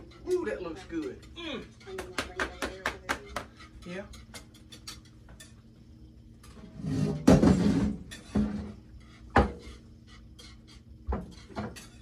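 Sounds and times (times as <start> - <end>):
frying pan and dishes clattering: 0.0 - 5.7, 6.5 - 12.0.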